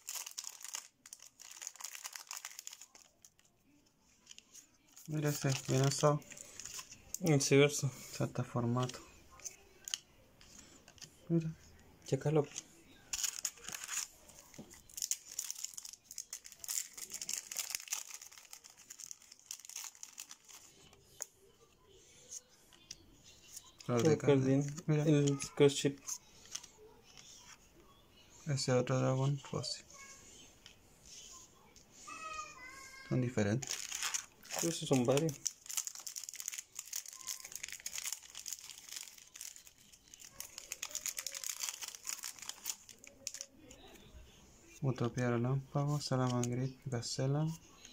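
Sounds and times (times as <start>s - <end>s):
foil wrapper crinkling and tearing: 0.0s - 3.5s, 4.3s - 7.5s, 13.1s - 21.3s, 33.5s - 43.8s.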